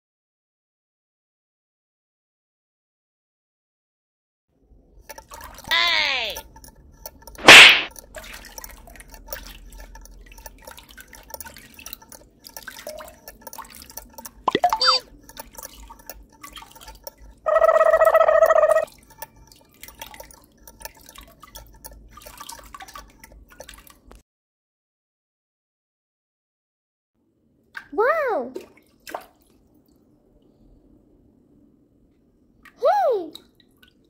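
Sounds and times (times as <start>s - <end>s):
water trickling and dripping: 4.7s - 24.2s, 27.6s - 31.2s, 32.0s - 34.0s.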